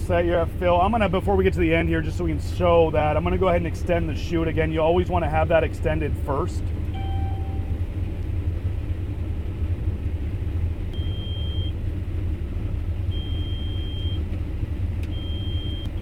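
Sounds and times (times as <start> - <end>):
combine low rumble: 0.0 - 16.0
high electronic alert tone: 7.0 - 7.7.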